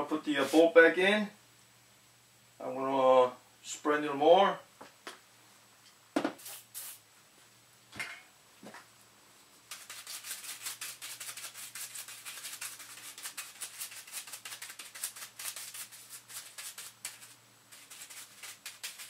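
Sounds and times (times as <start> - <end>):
bristle brush scrubbing metal: 9.7 - 19.0.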